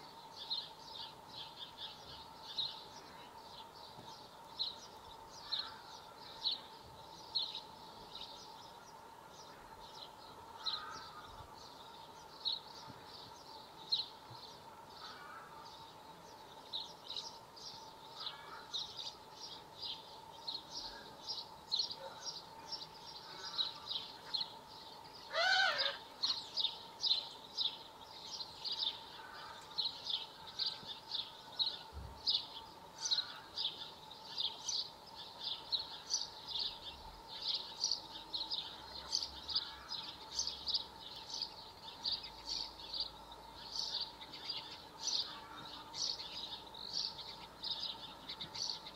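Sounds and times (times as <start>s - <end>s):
lower bird call: 20.8s - 34.8s.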